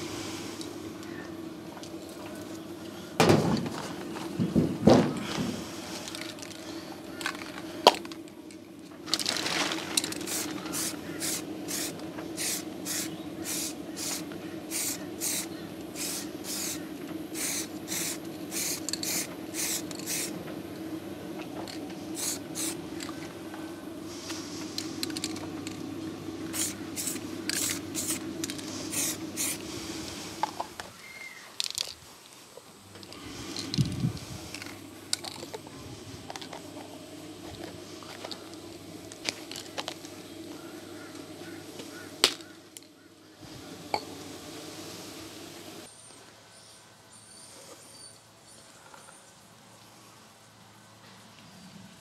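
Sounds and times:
clothes dryer humming: 0:00.0 - 0:31.6, 0:32.4 - 0:45.9
aerosol spray can hissing: 0:10.2 - 0:20.4, 0:22.1 - 0:22.8, 0:26.4 - 0:30.8.

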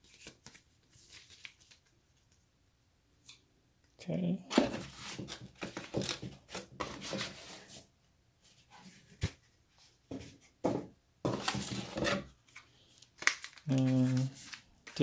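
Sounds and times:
hands rummaging in cardboard box: 0:11.3 - 0:12.3.

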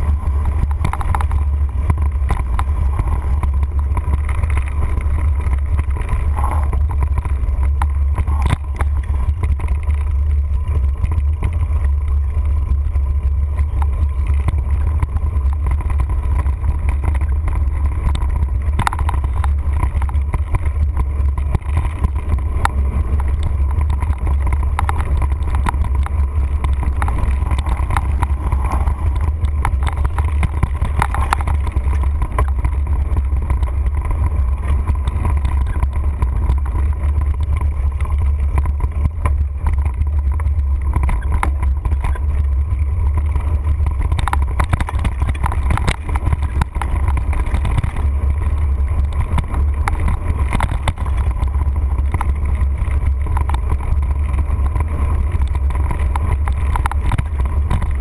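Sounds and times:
bike knocks and rattles: 0:00.0 - 0:58.0
wind rumble on microphone: 0:00.0 - 0:58.0.

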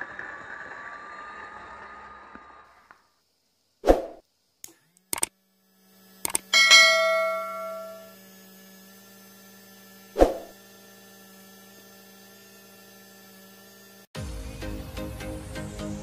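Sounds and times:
steady low hum: 0:06.4 - 0:08.2
bell chime: 0:06.6 - 0:08.1.

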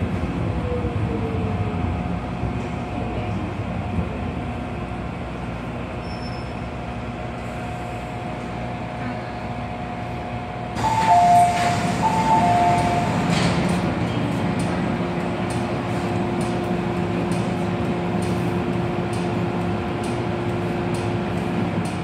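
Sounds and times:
train hum: 0:00.0 - 0:22.0
train doors sliding open: 0:10.7 - 0:22.0.

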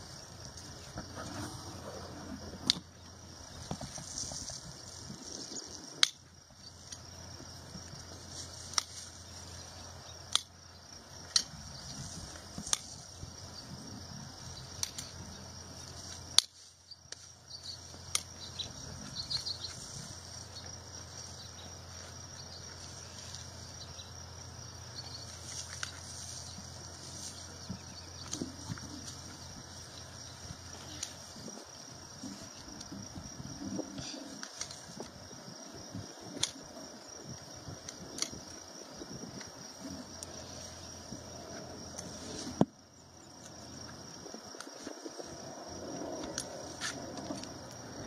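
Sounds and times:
hoof trimming snaps: 0:06.0 - 0:06.2, 0:08.6 - 0:09.1, 0:10.3 - 0:10.5, 0:12.6 - 0:13.0, 0:17.9 - 0:18.4, 0:36.4 - 0:36.6.

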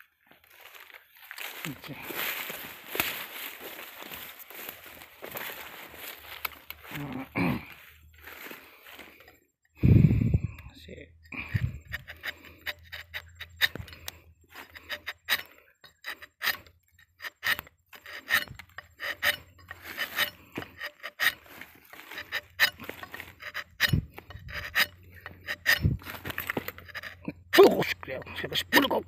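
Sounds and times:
knife scraping bark: 0:11.3 - 0:29.0.

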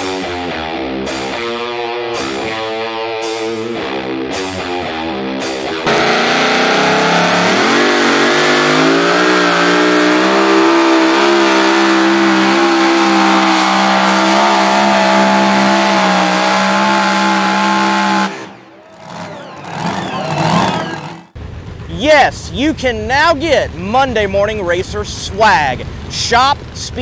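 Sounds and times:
supercharged engine at full throttle: 0:05.8 - 0:21.4.

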